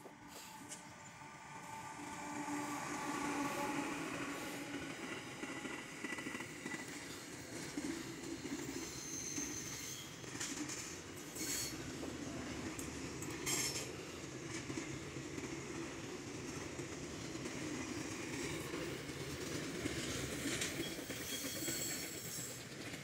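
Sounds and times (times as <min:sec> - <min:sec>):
train wheels rumbling on rail: 0:00.0 - 0:23.0
high-pitched wheel squeals: 0:08.4 - 0:10.3, 0:11.4 - 0:11.8, 0:20.8 - 0:22.5.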